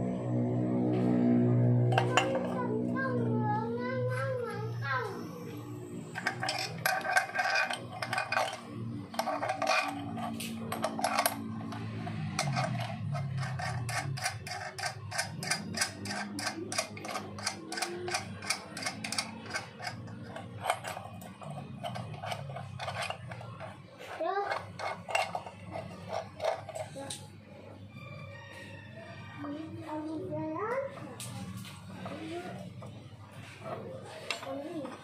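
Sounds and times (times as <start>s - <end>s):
nut spinning on threaded shaft: 5.8s - 27.2s.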